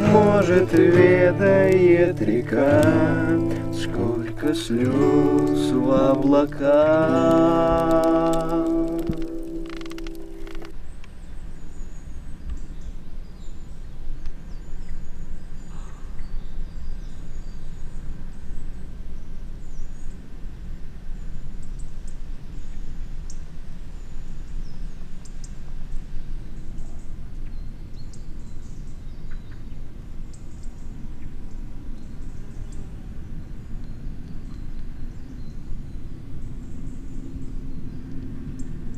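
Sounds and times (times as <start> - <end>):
small birds chirping: 0.0 - 13.7.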